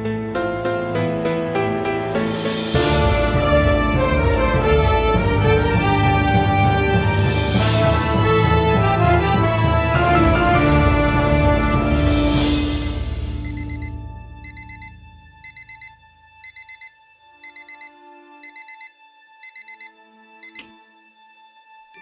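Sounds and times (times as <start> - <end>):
alarm clock beeping: 12.8 - 20.7
alarm switch click: 14.5 - 20.8.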